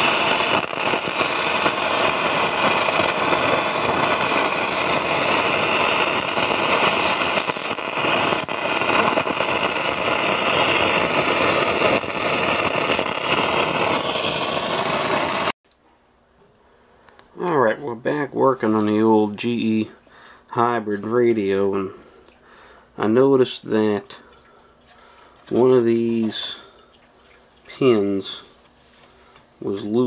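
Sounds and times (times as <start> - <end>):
radio static hiss with crackles: 0.0 - 15.6.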